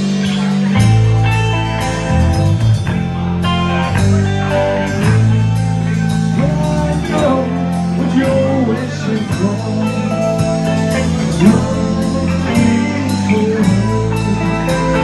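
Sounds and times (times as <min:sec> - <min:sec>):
bass guitar: 0:00.0 - 0:15.0
drums: 0:00.0 - 0:15.0
electric guitar: 0:00.0 - 0:15.0.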